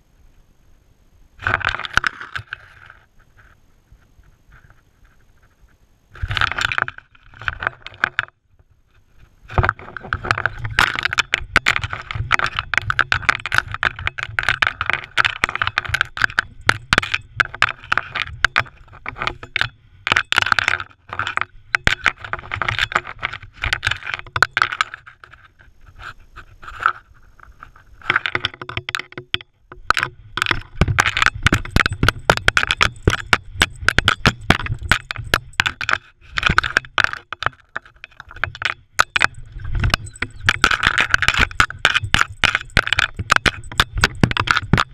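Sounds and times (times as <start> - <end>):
crushed rock crunching under paws: 1.4 - 44.9.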